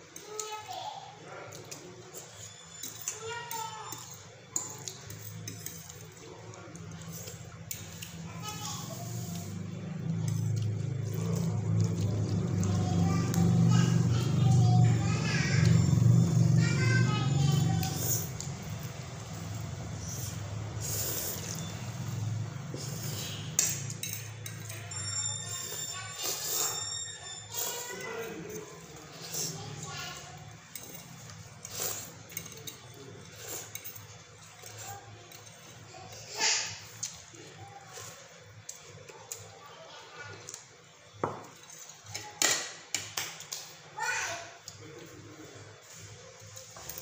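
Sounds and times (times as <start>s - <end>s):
faint talk: 0.1s - 20.4s, 24.3s - 30.7s, 31.8s - 41.1s
noodles being slurped: 31.6s - 32.4s.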